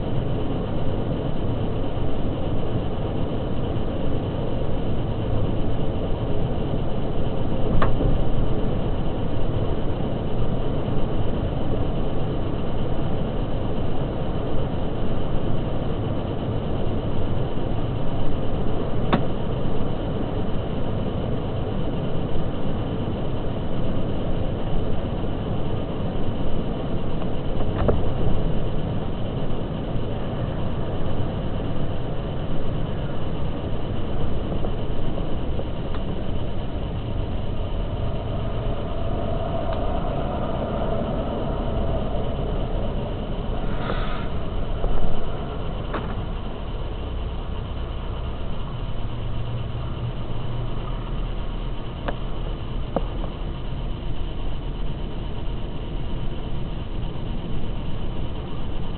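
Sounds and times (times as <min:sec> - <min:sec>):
car road and engine noise: 0:00.0 - 0:58.9
faint ticks: 0:52.9 - 0:53.2.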